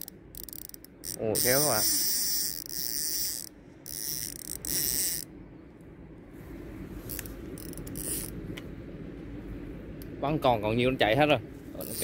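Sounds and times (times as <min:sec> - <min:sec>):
fishing reel drag buzzing: 0:00.0 - 0:05.3, 0:07.1 - 0:08.4, 0:11.8 - 0:12.0.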